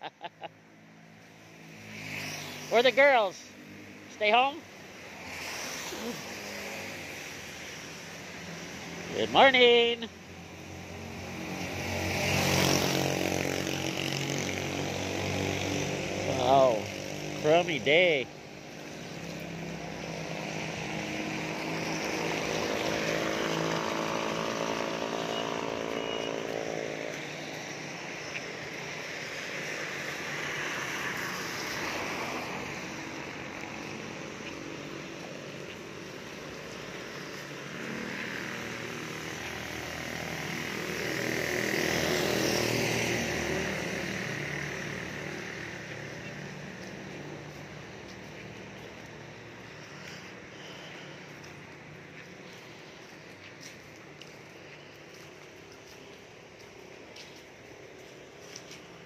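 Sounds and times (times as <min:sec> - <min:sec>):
tyres hissing on wet road: 0:01.2 - 0:59.0
engine hum: 0:18.7 - 0:29.1.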